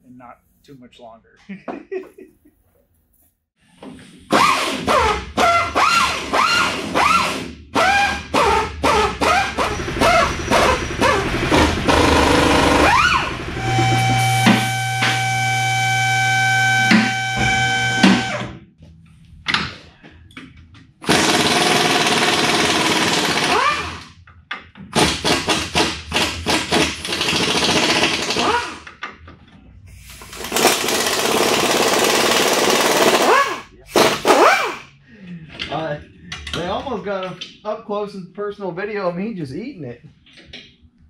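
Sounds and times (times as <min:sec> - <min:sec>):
air impact wrench bursts: 0:04.1 - 0:18.4, 0:21.0 - 0:24.1, 0:24.9 - 0:28.8, 0:29.9 - 0:35.0.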